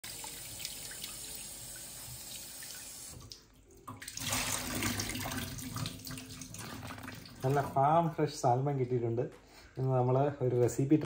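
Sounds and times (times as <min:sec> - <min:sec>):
tap water splashing in sink: 0:00.0 - 0:07.8.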